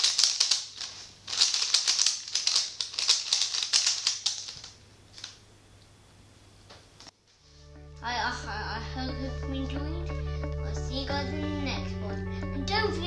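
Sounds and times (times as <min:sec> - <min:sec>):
speed cube clicking: 0:00.0 - 0:04.8.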